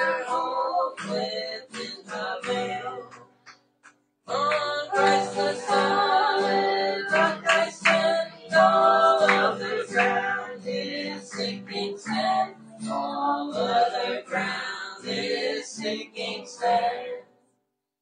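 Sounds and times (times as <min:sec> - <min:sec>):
woman singing: 0:04.3 - 0:16.7.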